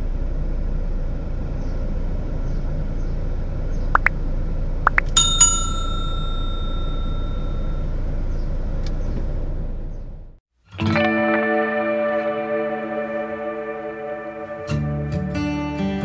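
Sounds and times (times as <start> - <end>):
low traffic rumble: 0.0 - 10.4
notification bell ding: 4.9 - 7.8.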